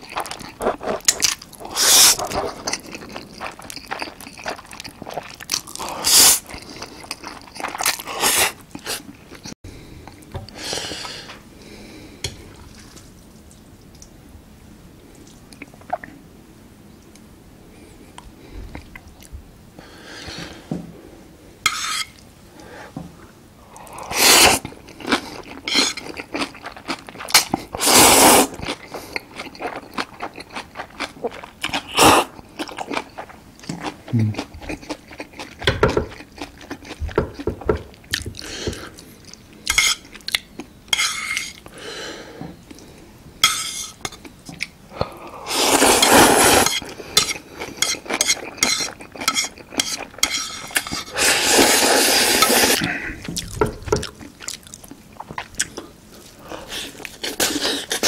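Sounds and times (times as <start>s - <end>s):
chewing: 0.0s - 10.2s, 24.6s - 27.8s, 28.5s - 41.7s, 46.0s - 58.0s
slurping noodles: 0.7s - 2.6s, 23.8s - 24.6s, 27.8s - 28.6s, 45.4s - 47.0s, 50.4s - 53.2s.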